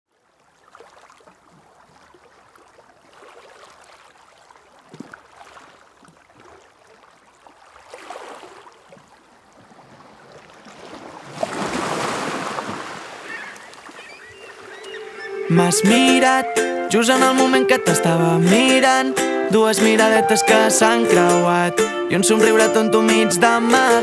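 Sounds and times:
sea waves washing in: 9.5s - 16.9s.

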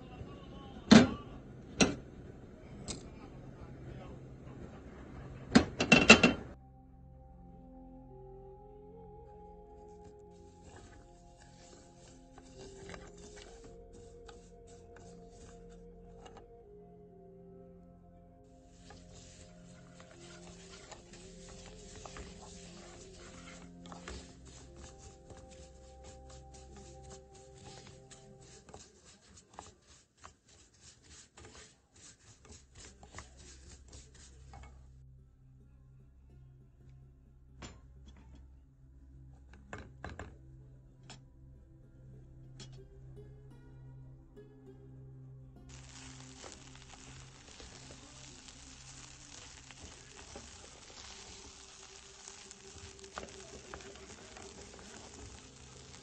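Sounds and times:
wooden spatula stirring: 9.8s - 16.4s, 18.6s - 34.9s, 45.7s - 56.0s
wooden spoon scraping noodles in pan: 9.8s - 16.4s, 18.6s - 34.9s, 45.7s - 56.0s
rice sizzling in hot oil: 10.5s - 14.4s, 18.6s - 34.3s, 45.7s - 56.0s.

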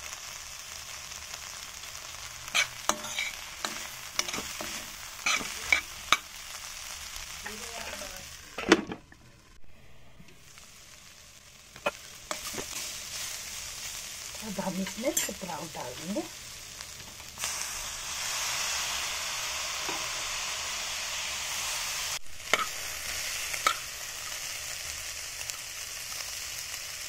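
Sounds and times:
vegetables sizzling in a pan: 0.0s - 27.0s
metal spoon scraping a pan: 2.4s - 6.3s, 11.8s - 16.2s, 22.5s - 23.9s.

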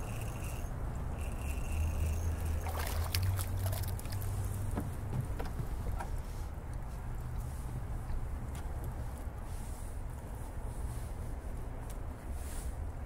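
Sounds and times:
low steady rumble: 0.0s - 13.0s
fish splashing in water: 2.4s - 4.4s.

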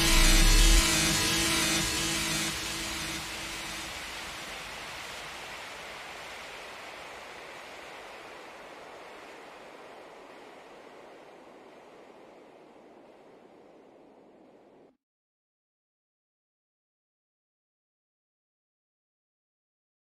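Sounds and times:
steady hiss of noise: 0.0s - 14.9s.

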